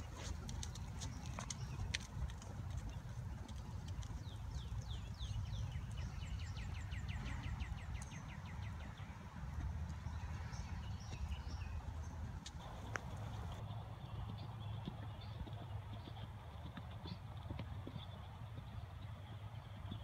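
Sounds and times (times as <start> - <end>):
horse hoofbeats on sand: 0.0 - 20.0
bird singing trill: 4.1 - 9.1.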